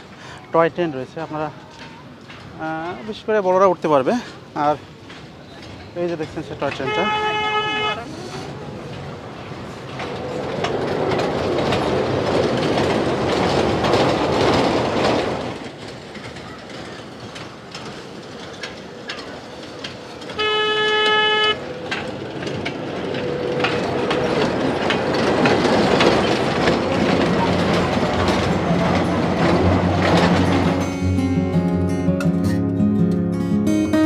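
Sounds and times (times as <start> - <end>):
train horn toot: 6.8 - 8.1, 20.3 - 21.7.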